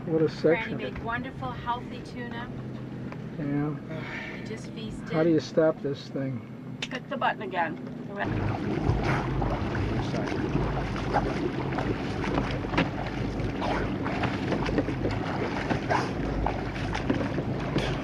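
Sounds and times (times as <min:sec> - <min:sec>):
steady low hum: 0:00.0 - 0:18.0
swimmer splashing: 0:08.1 - 0:18.0
wind on microphone: 0:08.2 - 0:18.0.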